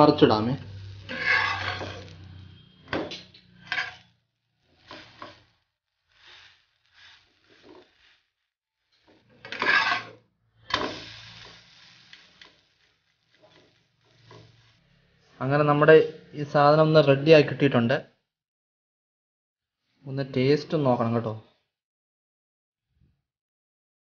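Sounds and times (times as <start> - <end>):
oil hissing: 0.6 - 2.5, 4.6 - 8.4, 10.6 - 15.2
metal spatula scraping frying pan: 0.6 - 15.0.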